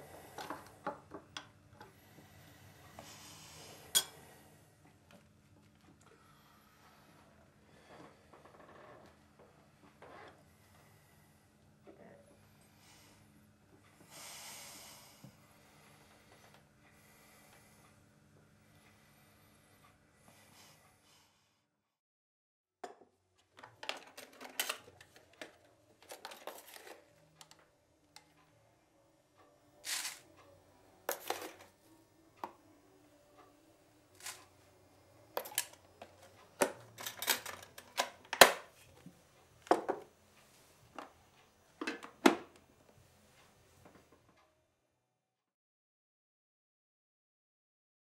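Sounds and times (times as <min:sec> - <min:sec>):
small objects clicking and knocking: 0:29.8 - 0:30.2, 0:35.4 - 0:38.6.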